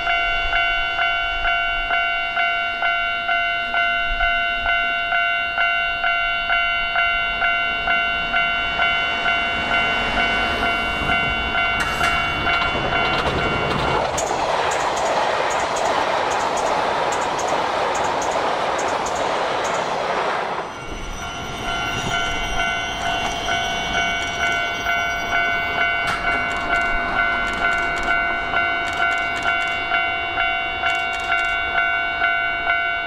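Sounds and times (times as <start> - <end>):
level-crossing warning bell ringing: 0.0 - 19.9, 20.6 - 33.0
electric train rushing past: 6.1 - 33.0
train wheels clicking over rail joints: 10.1 - 20.3, 23.0 - 30.0.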